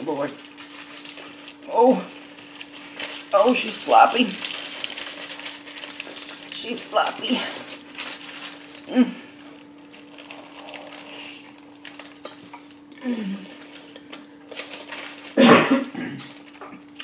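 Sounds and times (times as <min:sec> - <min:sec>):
paper wrapper crinkling: 0:00.0 - 0:12.9, 0:13.5 - 0:15.5, 0:16.2 - 0:17.0
chewing: 0:07.6 - 0:12.7.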